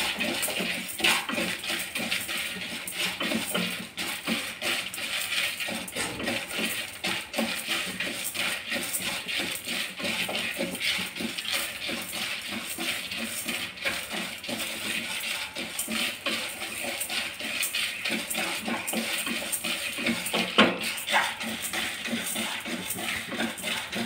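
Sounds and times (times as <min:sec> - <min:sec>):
grains rattling and scraping in pan: 0:00.0 - 0:24.0
wooden spatula stirring dry lentils: 0:00.0 - 0:24.0.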